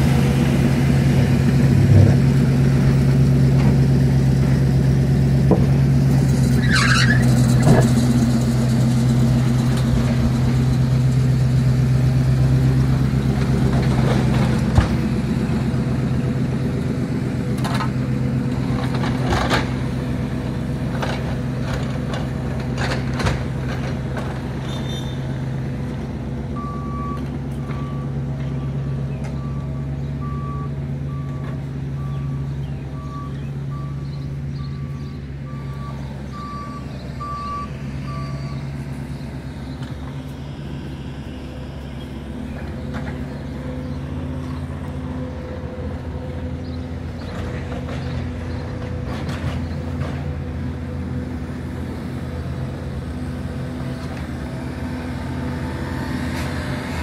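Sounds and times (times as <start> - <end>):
construction machinery engines: 0.0 - 57.0
backup alarm beeping: 34.6 - 38.7.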